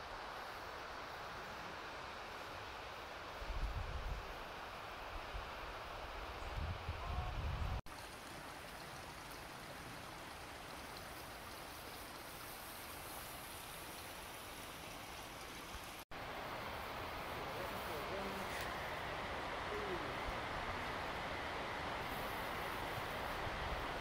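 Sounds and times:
stream water flowing: 0:07.8 - 0:24.0.

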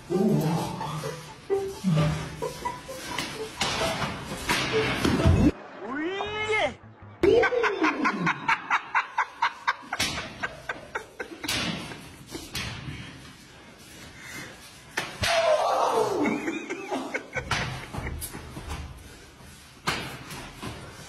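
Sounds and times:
smacks and thuds: 0:11.4 - 0:13.1, 0:19.8 - 0:20.8
burst of laughter: 0:16.2 - 0:18.4.

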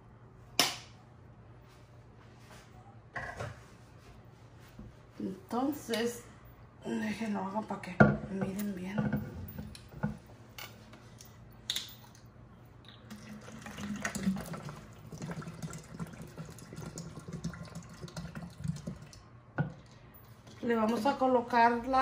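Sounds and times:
liquid pouring and splashing: 0:12.8 - 0:20.5.

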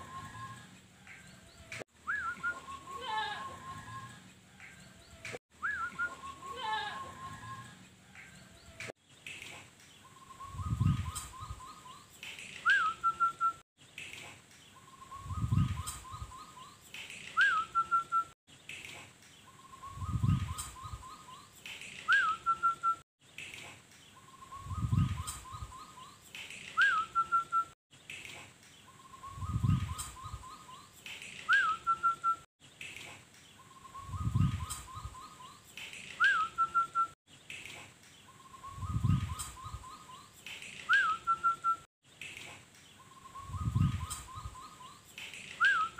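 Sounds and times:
dove cooing song: 0:00.0 - 0:05.0.

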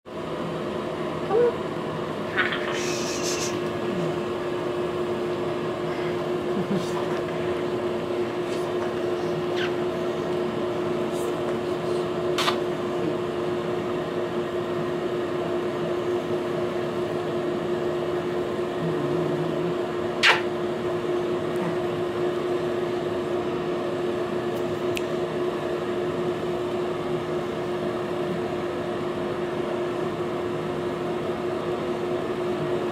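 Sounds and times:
air conditioner humming: 0:00.1 - 0:32.9
short sharp clicks: 0:20.2 - 0:20.5.

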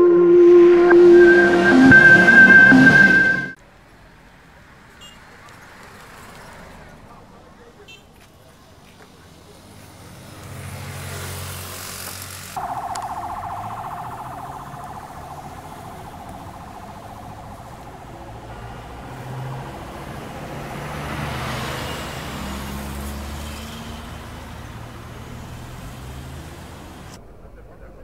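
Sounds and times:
vehicles driving past: 0:01.2 - 0:28.0
loud buzzing drone: 0:12.6 - 0:20.6.

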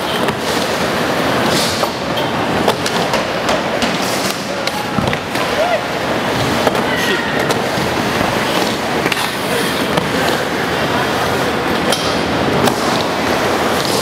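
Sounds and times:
skateboard wheels rolling on ramp: 0:00.0 - 0:14.0
skateboard clacks: 0:01.5 - 0:05.7.

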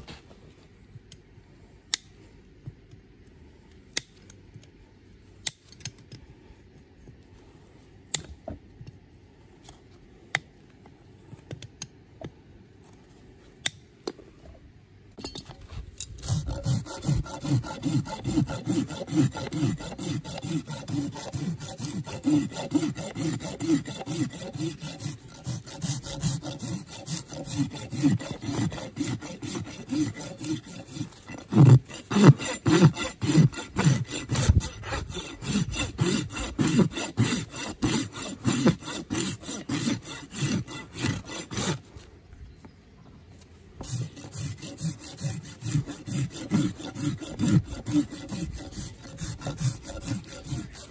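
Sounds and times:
rasp filing a hoof: 0:16.0 - 0:42.1, 0:43.8 - 0:50.9.

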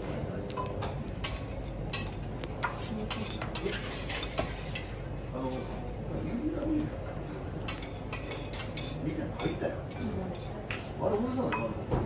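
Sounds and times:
metal spatulas scraping griddle: 0:01.2 - 0:05.7.

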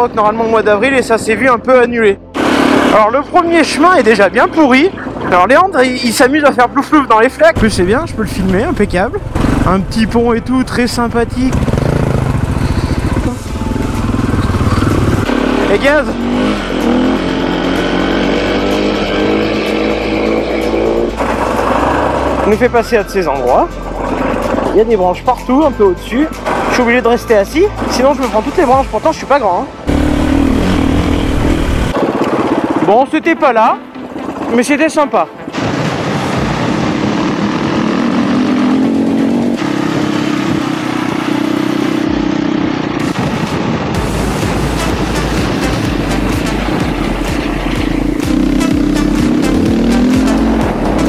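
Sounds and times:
motorcycle engine revving: 0:02.3 - 0:06.2, 0:07.6 - 0:22.8, 0:23.7 - 0:24.9, 0:29.7 - 0:35.0, 0:36.5 - 0:51.0.

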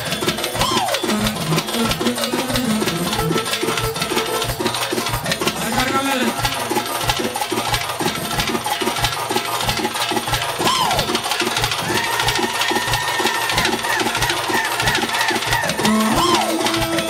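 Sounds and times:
steady drum beat: 0:00.0 - 0:17.0
electronic keyboard melody: 0:15.6 - 0:17.0.

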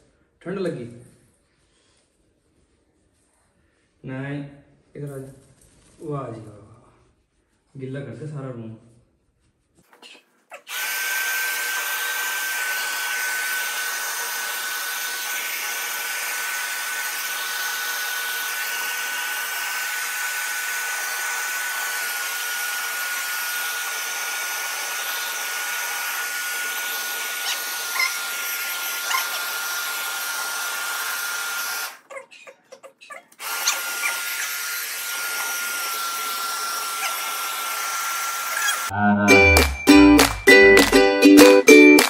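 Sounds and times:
hair dryer blowing: 0:10.7 - 0:32.1, 0:33.3 - 0:38.9.

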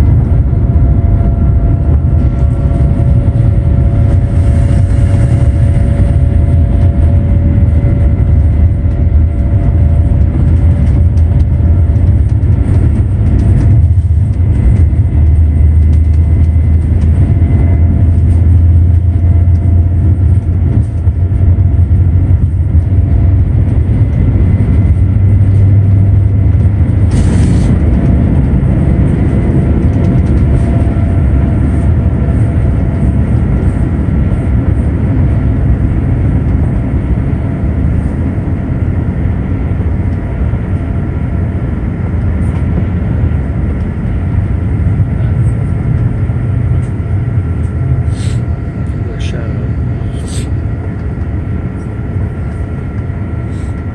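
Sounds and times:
jet engines rumbling: 0:00.0 - 0:53.9.

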